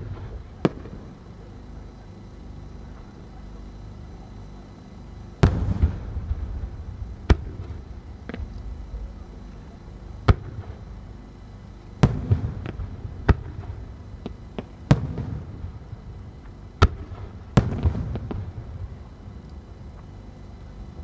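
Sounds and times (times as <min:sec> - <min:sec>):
firework booms: 0:05.4 - 0:08.5, 0:10.2 - 0:10.8, 0:12.0 - 0:15.8, 0:16.8 - 0:18.8.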